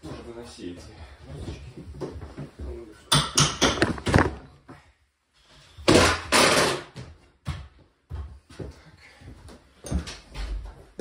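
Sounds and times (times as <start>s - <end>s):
wooden boards knocking: 3.2s - 4.4s.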